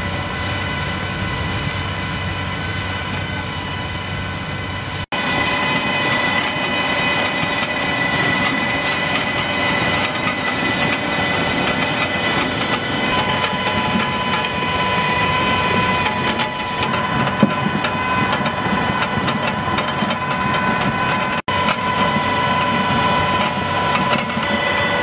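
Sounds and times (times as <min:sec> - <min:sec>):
rapid irregular clicking: 0:05.0 - 0:25.0
potato planter running: 0:05.1 - 0:25.0.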